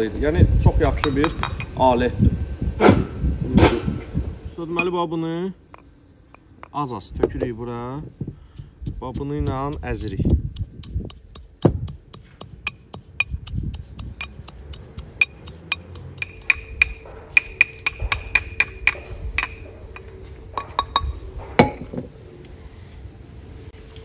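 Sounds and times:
pestle pounding in mortar: 8.5s - 21.8s.

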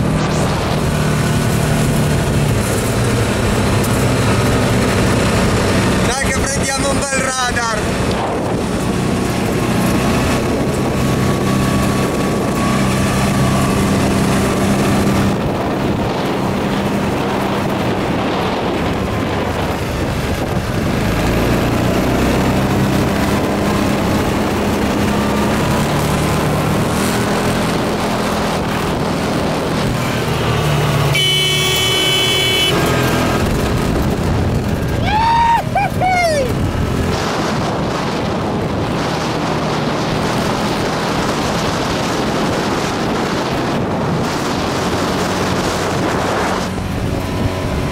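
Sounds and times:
buggy engine running: 0.0s - 47.9s
rumble and rattle from driving: 0.0s - 47.9s
horn sounding: 30.9s - 33.2s.

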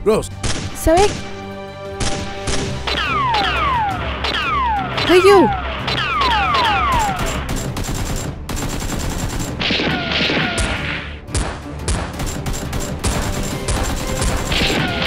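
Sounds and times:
rapid gunfire bursts: 5.0s - 15.0s.

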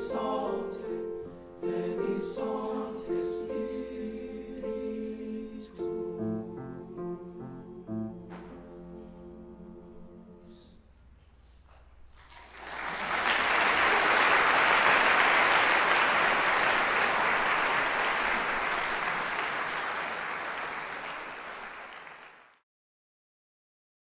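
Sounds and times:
audience applauding: 12.2s - 22.6s.

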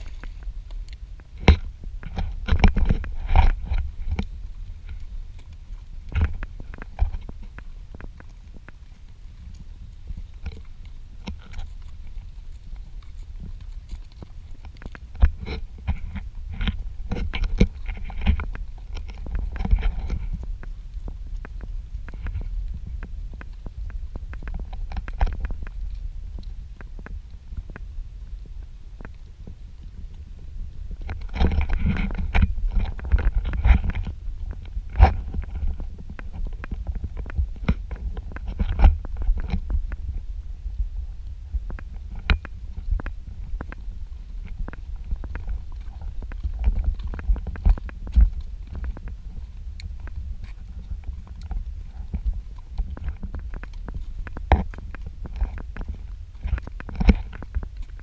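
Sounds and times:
horse movement rumble: 0.0s - 58.0s
wind on microphone: 0.0s - 58.0s.

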